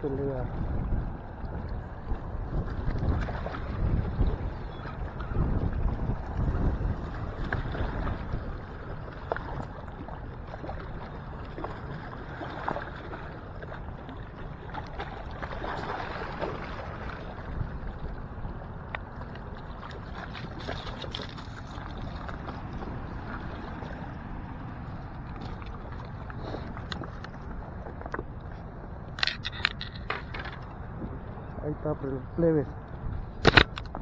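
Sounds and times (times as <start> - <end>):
wind rumble on microphone: 0.0 - 34.0
water lapping against rocks: 0.2 - 31.3
small clicks and splashes: 18.9 - 22.6, 25.2 - 28.3, 29.1 - 30.8, 33.4 - 34.0.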